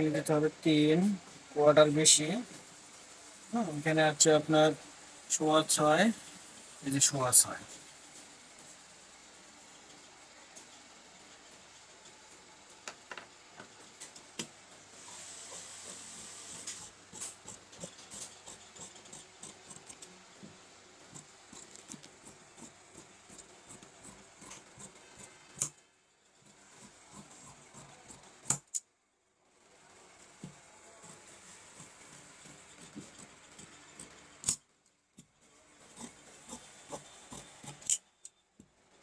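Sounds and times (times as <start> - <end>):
cloth rasping: 15.0 - 25.8, 26.4 - 28.6, 30.4 - 34.6, 35.2 - 38.0
shears snipping cloth: 15.0 - 25.8, 30.4 - 34.6.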